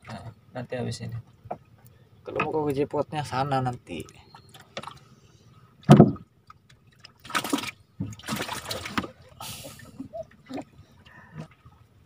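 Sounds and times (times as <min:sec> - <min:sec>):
water splashing and trickling: 0:00.0 - 0:12.0
thump: 0:05.9 - 0:06.2.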